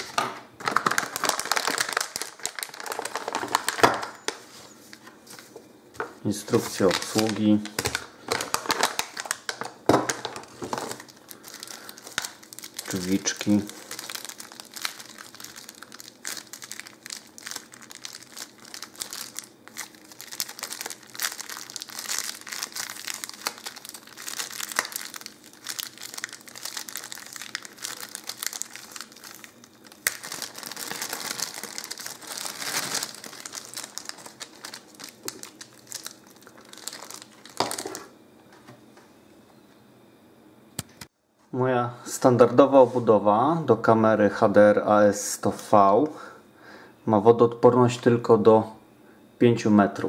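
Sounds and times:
plastic bag crinkling: 0.0 - 5.6, 6.3 - 38.1.

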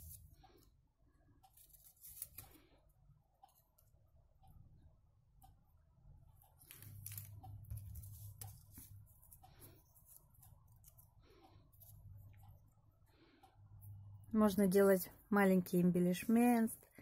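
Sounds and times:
low steady hum: 2.6 - 17.0
paper pieces rustling and ticking: 6.6 - 9.4.

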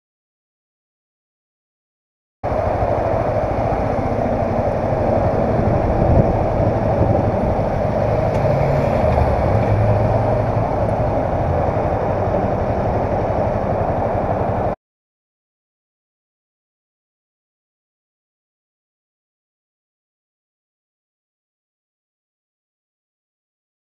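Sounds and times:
steady rushing hiss: 2.5 - 14.8.

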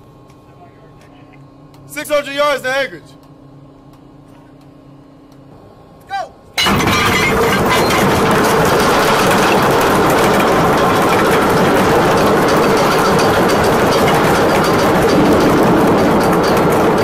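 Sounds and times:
anchor chain clattering: 6.7 - 17.0.

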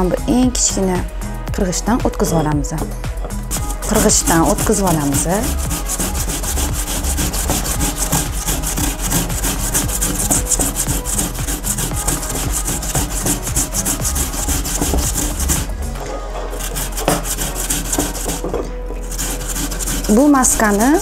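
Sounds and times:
potato rasping on grater: 3.5 - 15.7, 16.5 - 21.0.

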